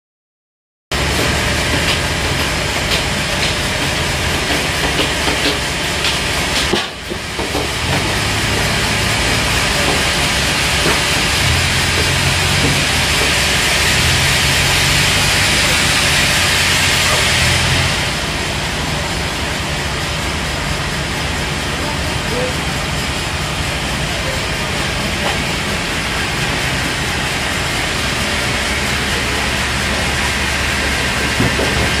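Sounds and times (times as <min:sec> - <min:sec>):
forklift engine rumbling: 0:00.9 - 0:32.0
sawmill machinery whirring: 0:00.9 - 0:32.0.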